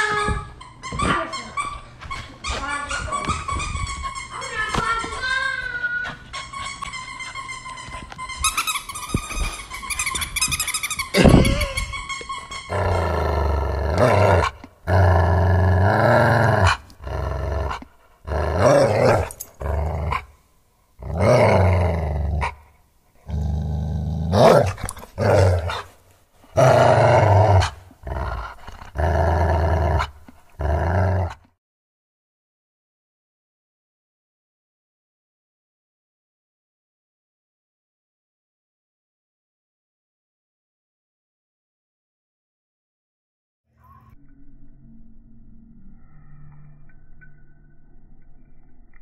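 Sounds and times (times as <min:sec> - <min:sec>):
puppy growling: 0:11.2 - 0:12.1, 0:12.7 - 0:20.4, 0:21.0 - 0:31.6.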